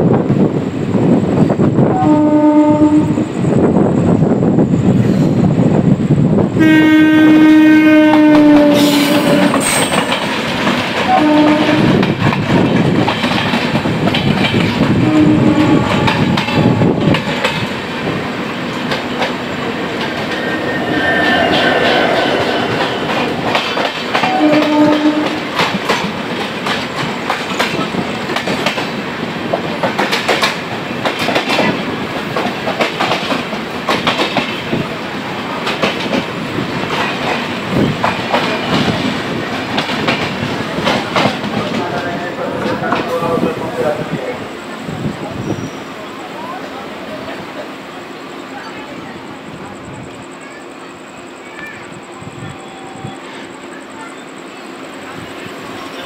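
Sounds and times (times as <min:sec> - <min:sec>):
train rumble: 0:00.0 - 0:56.0
train horn blasts: 0:01.9 - 0:03.2, 0:06.6 - 0:09.8, 0:11.1 - 0:12.0, 0:15.0 - 0:17.0, 0:20.0 - 0:25.4.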